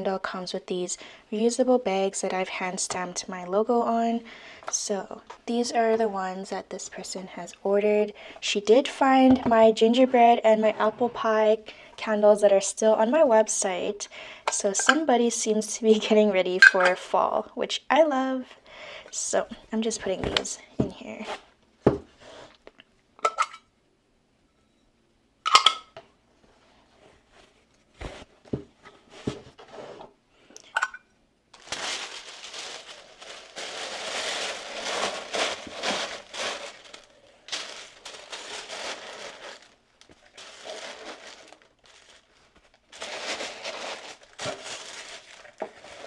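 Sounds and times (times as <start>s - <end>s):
tissue paper rustling: 31.6s - 46.0s.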